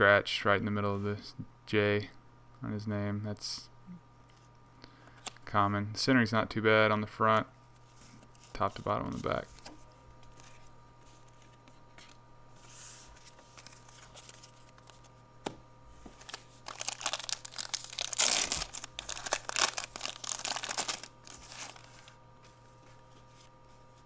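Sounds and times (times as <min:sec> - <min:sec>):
wrapper tearing and crinkling: 0:16.2 - 0:22.0.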